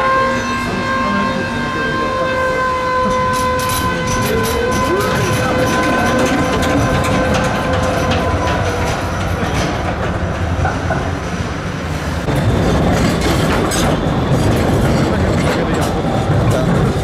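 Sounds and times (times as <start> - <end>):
tram passing close by: 0.0 - 17.0
tram pulling away: 0.0 - 17.0
tram wheels clacking over rail joints: 3.0 - 11.6, 12.2 - 17.0.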